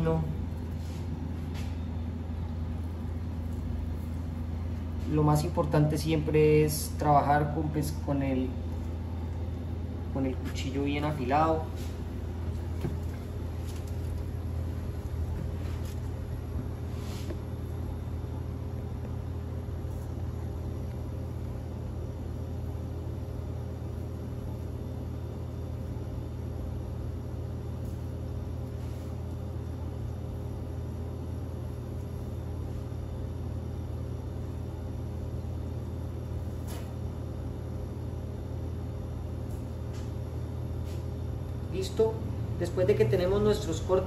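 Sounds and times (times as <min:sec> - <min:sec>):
kitchen equipment hum: 0:00.0 - 0:44.0.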